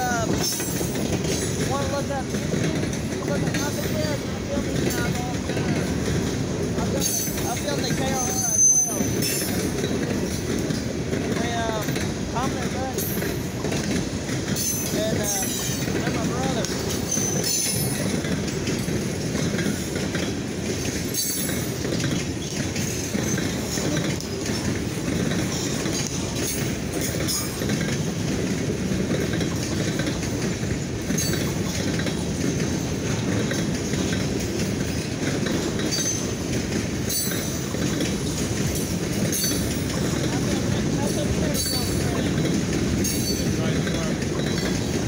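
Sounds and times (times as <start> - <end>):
train wheels rumbling and rattling: 0.0 - 45.0
high wheel squeals: 7.1 - 9.7.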